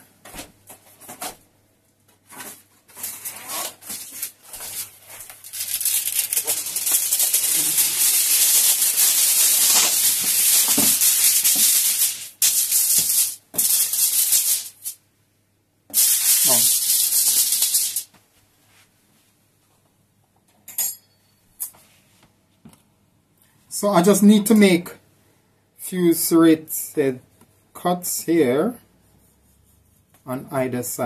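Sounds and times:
kitchen foil crinkling: 2.9s - 15.0s, 16.0s - 18.1s.

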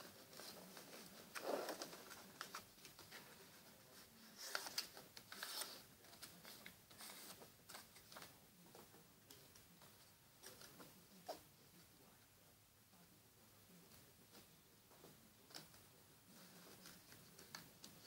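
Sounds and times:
paper rustling and crinkling: 0.0s - 8.4s.

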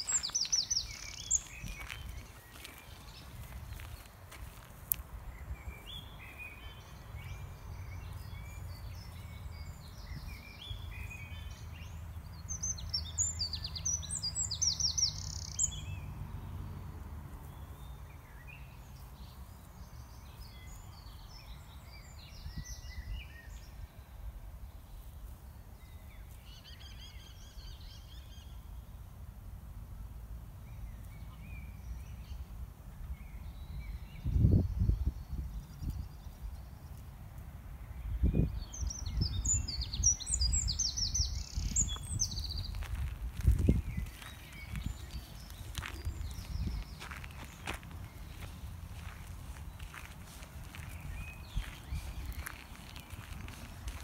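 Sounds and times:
songbirds chirping: 0.0s - 54.0s
steady low rumble: 40.5s - 54.0s.

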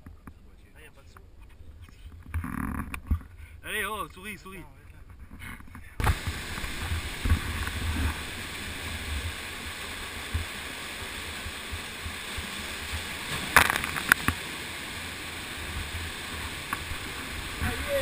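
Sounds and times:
waterfall pouring into pool: 6.0s - 18.0s.

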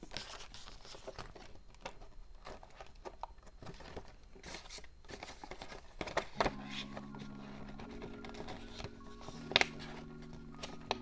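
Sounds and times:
paper bills rustling and crinkling: 0.0s - 11.0s
soft background music: 6.2s - 11.0s.

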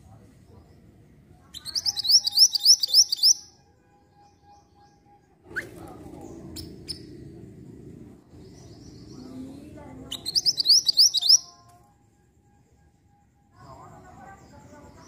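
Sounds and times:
high upward-sweeping bird chirps: 1.5s - 5.0s, 8.4s - 11.6s
low background hum: 5.1s - 15.0s.

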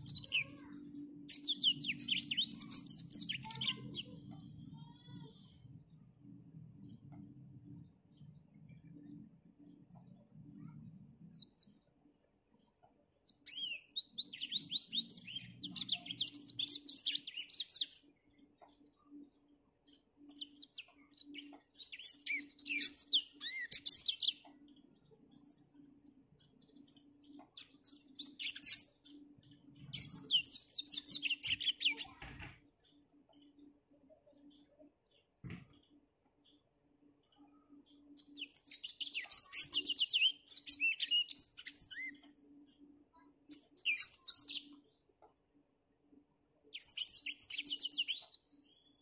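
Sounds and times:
canary twittering warbles: 0.0s - 5.2s, 13.2s - 18.0s, 20.2s - 32.6s, 37.5s - 42.4s.

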